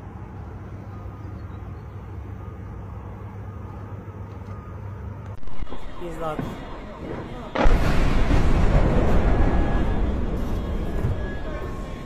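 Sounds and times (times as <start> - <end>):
low city rumble: 0.0 - 12.0
sudden burst of noise: 5.4 - 12.0.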